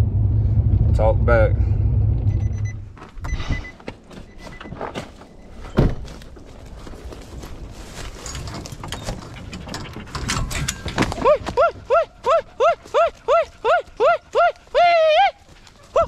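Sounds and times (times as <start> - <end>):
heavy thump: 4.6 - 6.3.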